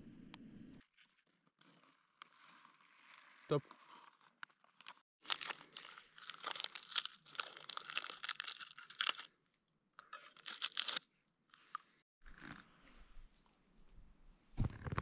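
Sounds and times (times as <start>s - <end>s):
plastic packaging crinkling: 5.2s - 9.3s, 10.0s - 11.0s.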